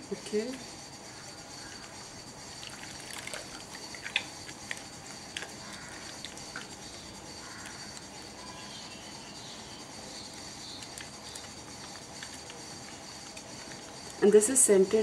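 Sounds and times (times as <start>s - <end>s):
hands sloshing water in bowl: 2.6s - 6.7s
small water splashes: 2.6s - 6.8s.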